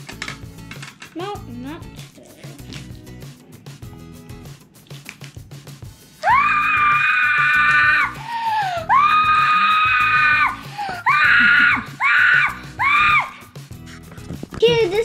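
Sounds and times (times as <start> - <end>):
background music: 0.0 - 15.0
boy screaming: 6.2 - 13.4.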